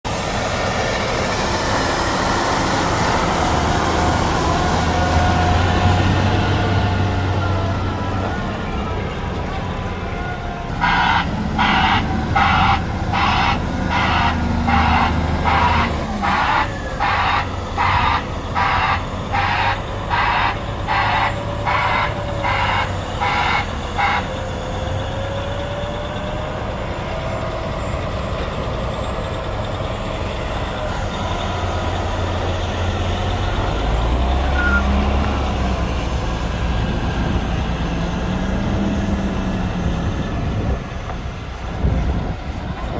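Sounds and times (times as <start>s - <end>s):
diesel engine running: 0.0s - 42.9s
reverse alarm beeping: 34.4s - 35.1s.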